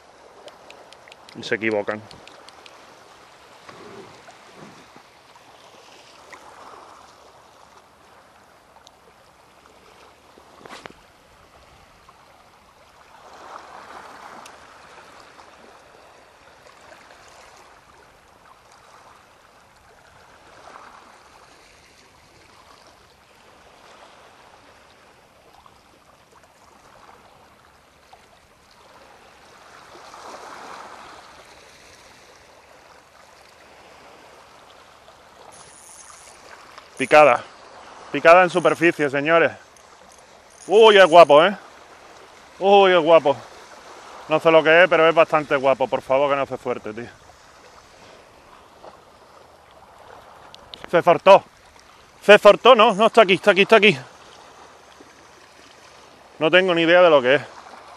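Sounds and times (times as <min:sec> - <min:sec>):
small waves washing on shore: 0:00.0 - 0:57.9
sharp click: 0:00.4 - 0:02.8.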